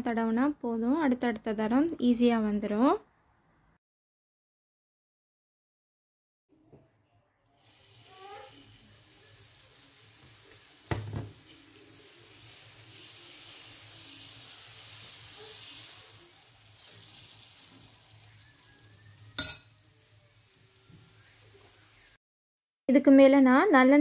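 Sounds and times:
batter sizzling on a pan: 7.6s - 22.2s.

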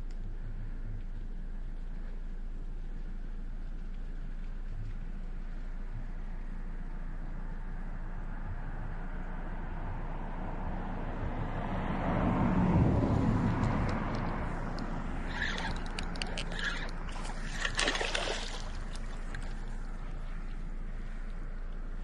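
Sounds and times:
fish splashing at water surface: 15.3s - 19.9s.

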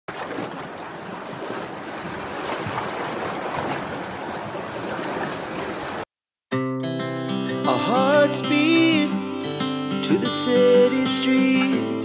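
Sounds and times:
ocean surf rushing: 0.2s - 6.0s.

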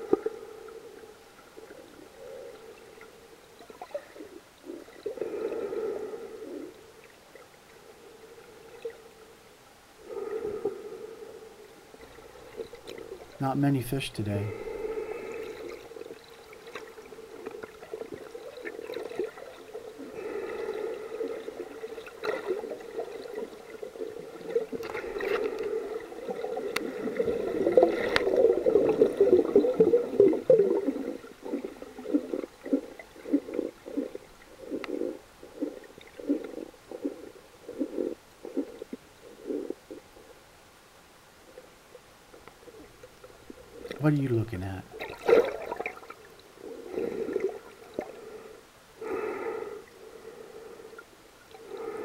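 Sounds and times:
muffled underwater churning: 0.0s - 44.0s, 44.9s - 52.0s
muffled underwater pulses: 14.4s - 40.4s.

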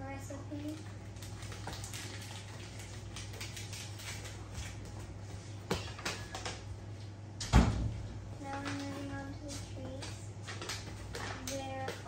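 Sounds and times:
cardboard and packet rustling: 0.6s - 5.1s.

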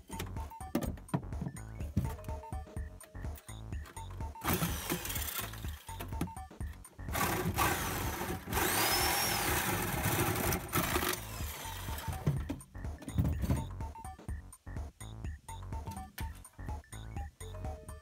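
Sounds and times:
background music: 0.0s - 18.0s
power tool cutting steel panel: 7.4s - 11.8s.

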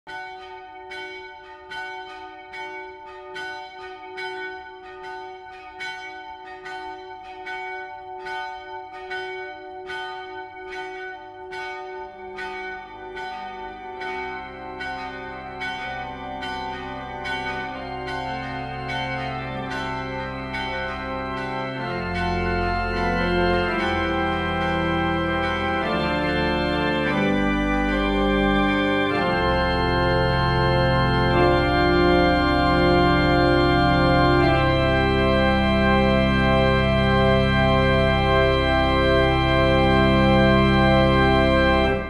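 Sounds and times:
church bells ringing: 0.1s - 42.0s
low sustained instrumental chord: 12.8s - 42.0s.

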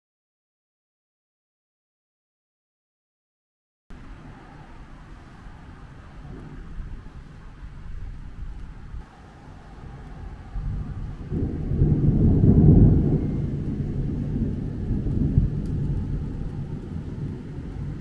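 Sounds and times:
rolling thunder: 3.9s - 18.0s.

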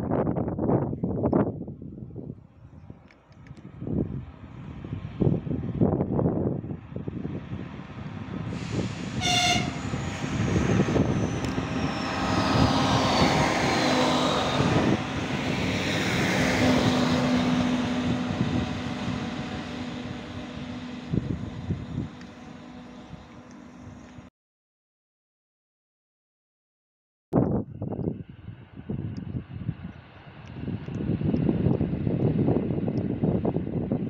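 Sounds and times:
train wheels rumbling on rails: 3.0s - 24.3s, 28.6s - 34.0s
train horn toot: 9.2s - 10.0s.

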